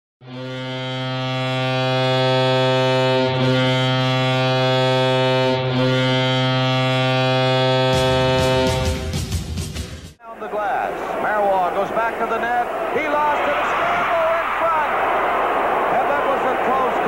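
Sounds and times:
goal horn low note: 0.2s - 9.2s.

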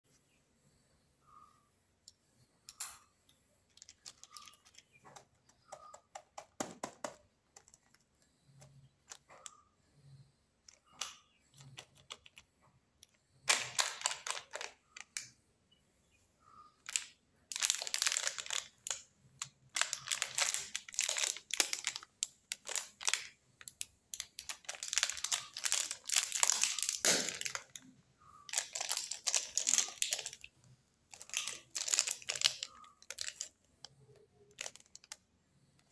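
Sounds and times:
plastic wrappers crinkling: 3.7s - 5.2s, 13.4s - 15.3s, 16.8s - 30.5s, 31.1s - 35.3s.

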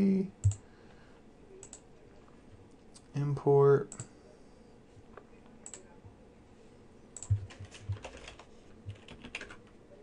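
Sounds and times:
computer mouse clicks: 0.4s - 0.6s, 1.6s - 1.8s, 5.6s - 5.9s, 7.2s - 9.6s
keyboard typing: 0.4s - 0.6s, 7.2s - 9.8s.

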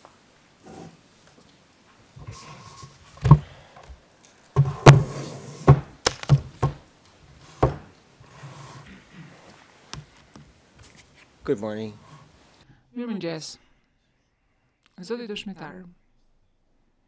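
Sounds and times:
knocks and thumps on desk: 3.2s - 3.5s, 4.6s - 6.8s, 7.6s - 7.9s.

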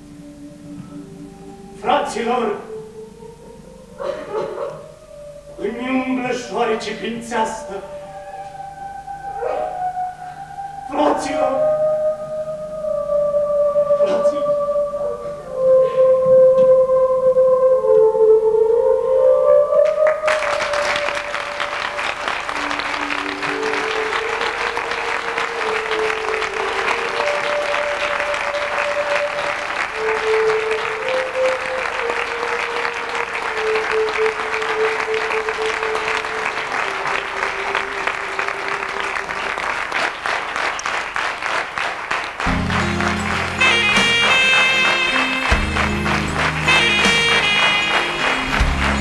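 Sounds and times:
slow melody of held notes: 0.0s - 40.0s, 42.4s - 49.0s
music with low drone: 0.0s - 41.3s, 42.4s - 49.0s
audience applauding: 19.8s - 49.0s.

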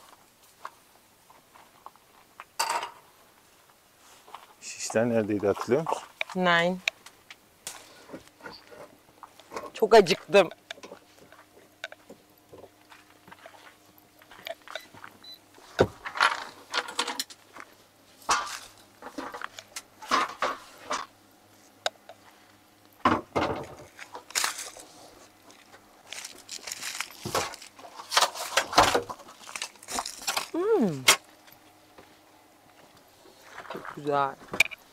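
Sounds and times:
rummaging through a cupboard: 23.2s - 30.6s.

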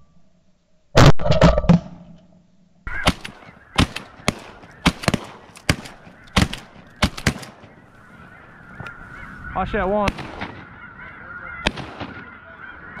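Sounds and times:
geese honking: 2.9s - 13.0s
shotguns firing: 3.0s - 7.8s, 10.0s - 10.8s, 11.6s - 12.4s.

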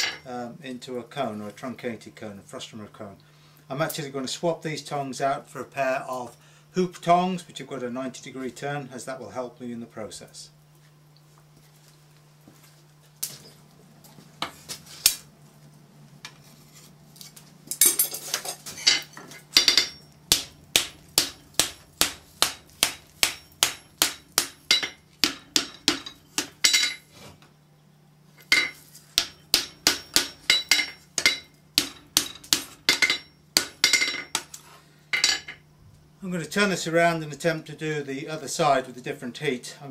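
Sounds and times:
hammer striking steel on anvil: 0.0s - 0.3s, 19.6s - 27.1s, 28.4s - 34.5s, 35.1s - 35.6s.

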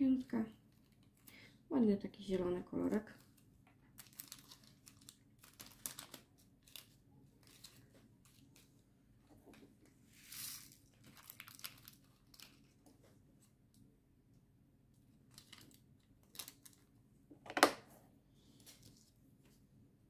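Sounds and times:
plastic bags crinkling: 2.8s - 8.7s, 10.3s - 12.9s, 15.3s - 16.8s.

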